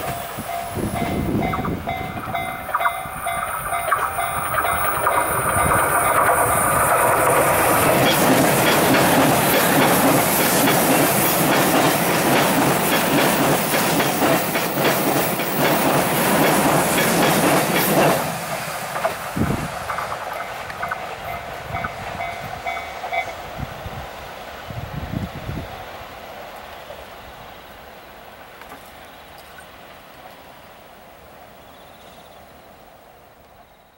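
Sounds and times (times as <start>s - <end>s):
level crossing warning bell: 0.0s - 7.1s, 21.2s - 23.4s
wheels clattering over rail joints: 0.0s - 23.3s
train passing at high speed: 0.0s - 33.9s.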